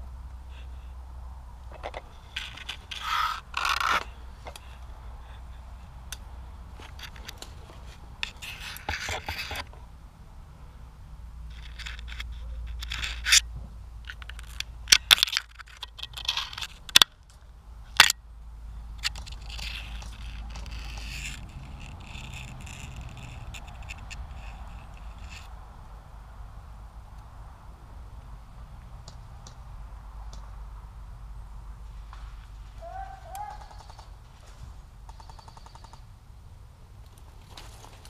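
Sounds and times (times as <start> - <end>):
rustling and scraping: 1.6 - 6.0, 6.7 - 9.9, 11.5 - 18.2, 18.9 - 25.6, 31.8 - 34.9, 37.1 - 38.0
low steady rumble: 9.6 - 33.4
sharp clicks: 35.0 - 36.1.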